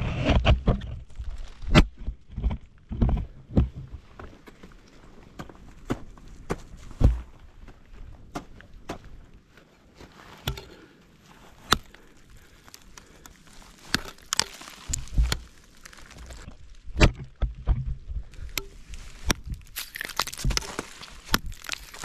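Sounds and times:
ice axes striking ice: 0:10.4 - 0:10.8, 0:11.6 - 0:17.2, 0:18.4 - 0:22.0.

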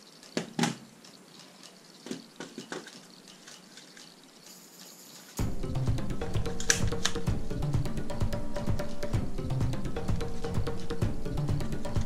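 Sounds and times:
plastic toy blasters clacking: 0:00.0 - 0:05.4, 0:06.4 - 0:07.2.

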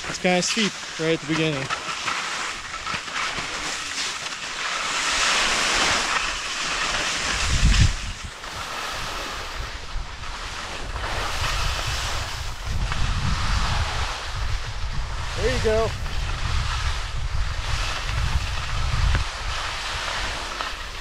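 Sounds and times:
skis scraping over snow: 0:00.0 - 0:21.0
wind buffeting microphone: 0:07.2 - 0:21.0.

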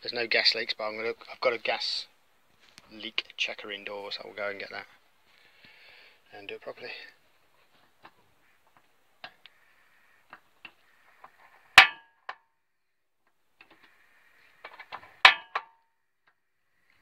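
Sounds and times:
faint gas hiss: 0:04.7 - 0:11.8.

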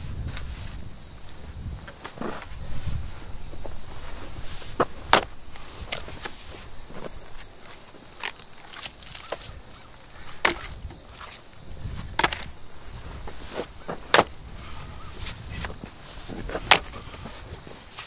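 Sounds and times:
digging tool striking hard soil: 0:10.2 - 0:11.2.

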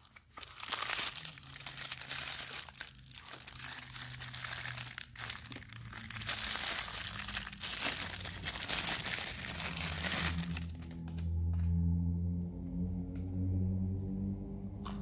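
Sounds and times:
plastic bag crinkling: 0:00.0 - 0:11.2.

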